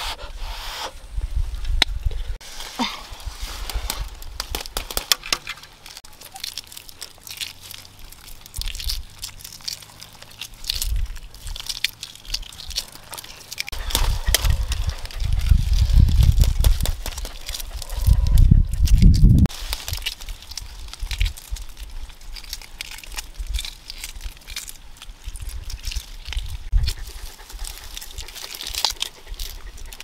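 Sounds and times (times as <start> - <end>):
egg shells cracking and peeling: 3.8 - 30.0
heavy low rumble: 5.7 - 19.5.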